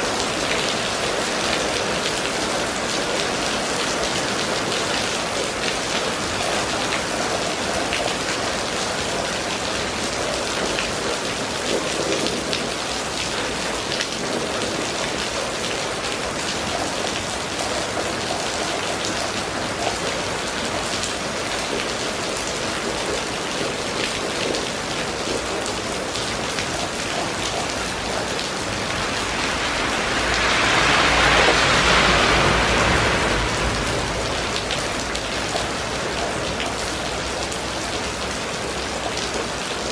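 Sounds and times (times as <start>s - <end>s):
rain on pavement: 0.0s - 39.9s
low rumble: 28.6s - 35.6s.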